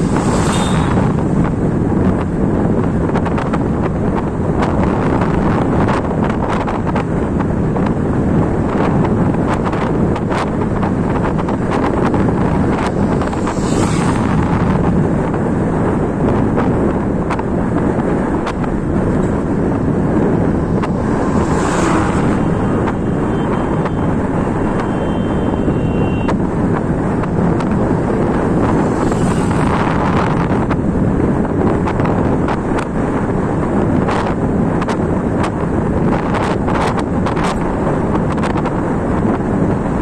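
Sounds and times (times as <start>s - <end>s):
truck passing: 0.0s - 3.2s, 9.7s - 17.2s, 17.8s - 25.7s, 26.5s - 32.1s
passing traffic: 0.0s - 40.0s
wind rushing over microphone: 0.0s - 40.0s.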